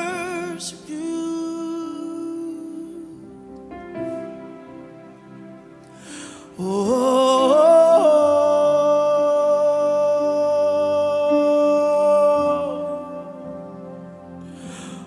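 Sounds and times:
soft sustained accompaniment: 0.0 - 15.0
person singing a long note: 6.0 - 15.0.

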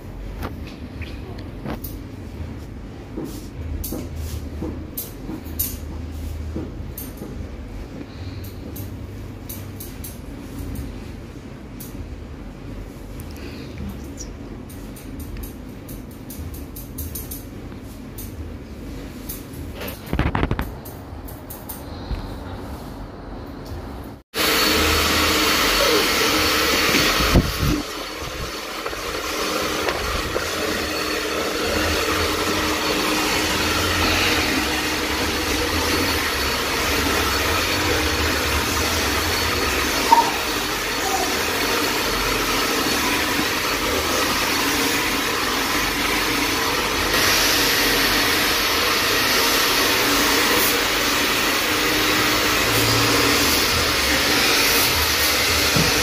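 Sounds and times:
hair dryer running: 24.3 - 56.0.

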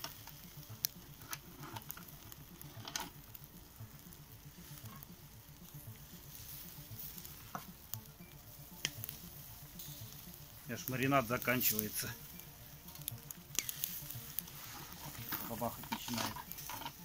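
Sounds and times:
sharp clicks and pops: 0.0 - 3.5, 7.5 - 9.2
meat sizzling over charcoal: 0.0 - 17.0.

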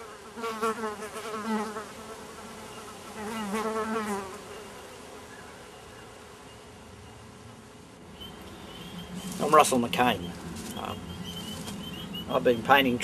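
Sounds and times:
flying insect buzzing: 0.0 - 6.9.

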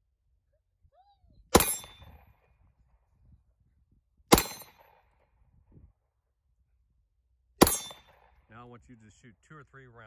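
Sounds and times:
pistol shots with echo: 1.5 - 2.3, 4.3 - 5.2, 7.6 - 8.5.

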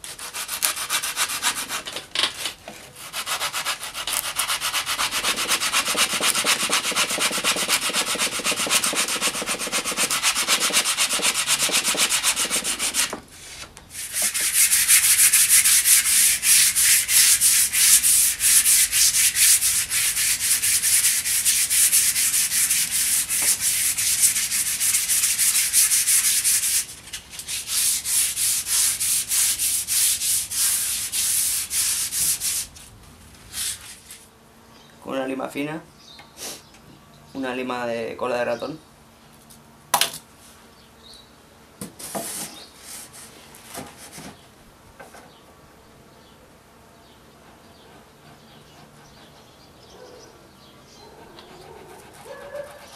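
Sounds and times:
wood rasp scraping cane: 0.0 - 32.7.

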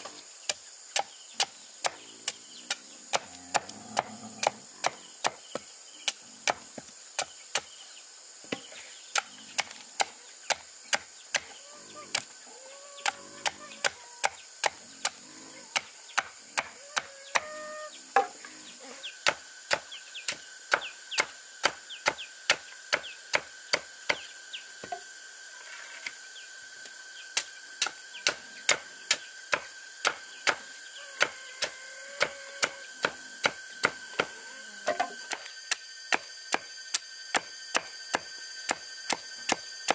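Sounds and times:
faint bird calls: 11.3 - 19.3, 30.3 - 33.1
blade chopping wood: 27.4 - 30.6.

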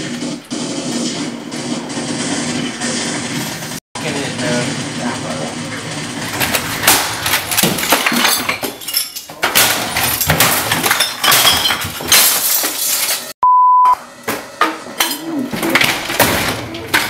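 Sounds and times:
glass breaking and clinking: 6.7 - 13.3
short steady beep: 13.4 - 14.0.

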